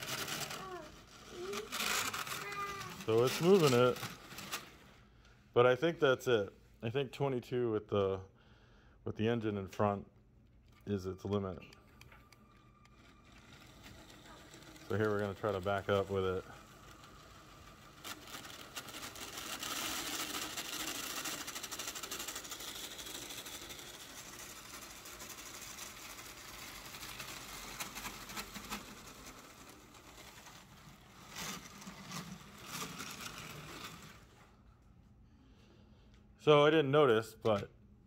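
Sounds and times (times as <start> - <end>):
plastic wheels clicking over track: 0.0 - 5.0, 11.2 - 34.6
toy train motor whirring: 0.0 - 5.1, 11.4 - 34.4.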